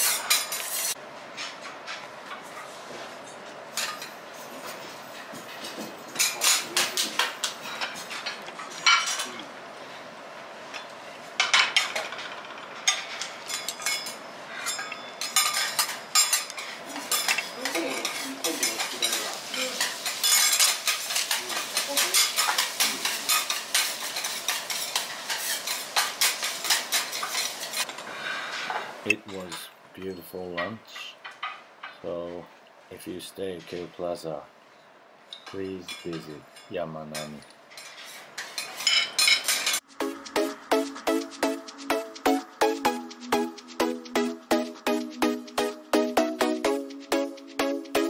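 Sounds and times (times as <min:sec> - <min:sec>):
cutlery scraping a ceramic plate: 0:00.0 - 0:01.0, 0:37.7 - 0:39.8.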